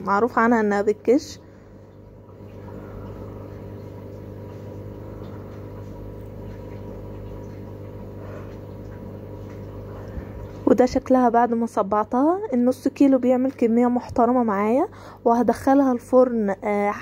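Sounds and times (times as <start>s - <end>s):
motor humming: 0.0s - 11.8s.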